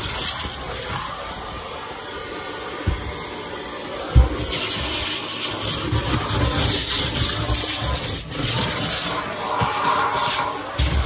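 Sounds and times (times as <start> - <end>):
vacuum cleaner sucking carpet: 0.0 - 11.0
thump: 2.8 - 3.1.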